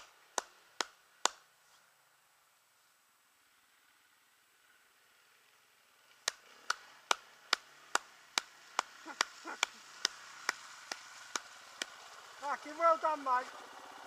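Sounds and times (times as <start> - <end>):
dirt bike engine: 3.2 - 14.0
sharp clicks: 6.2 - 11.9.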